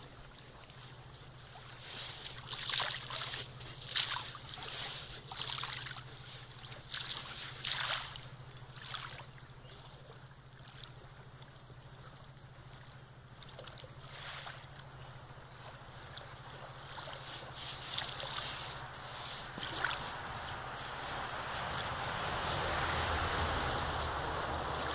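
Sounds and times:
dog digging in sand: 1.6 - 8.6, 16.5 - 22.2.

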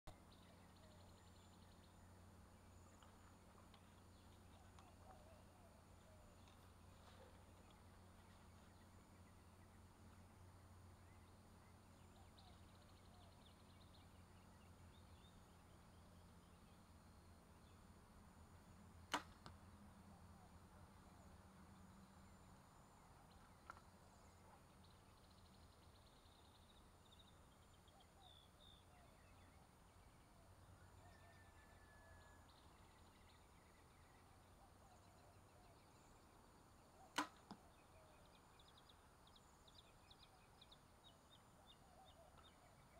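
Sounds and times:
birds chirping: 0.1 - 17.9
bow string snapping: 19.1 - 19.6, 37.1 - 37.6
small click: 37.1 - 37.6.

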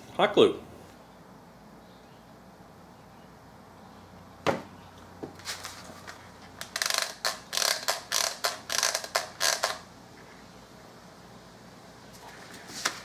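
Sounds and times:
rough clicks and scrapes: 5.4 - 9.8.

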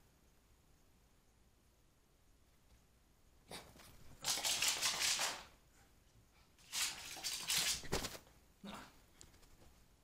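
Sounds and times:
dog scrabbling on carpet: 6.8 - 8.3.

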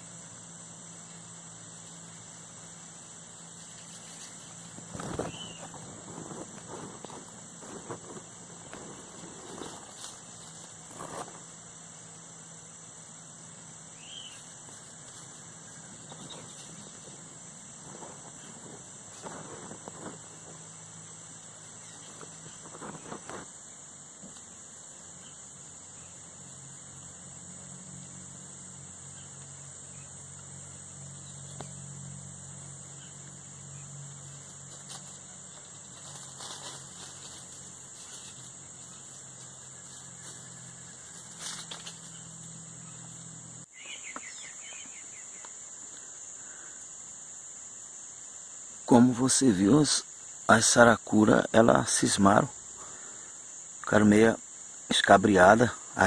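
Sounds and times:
high-pitched insect drone: 0.0 - 56.0
rustles in dry leaf litter: 3.5 - 11.5, 34.2 - 42.4.

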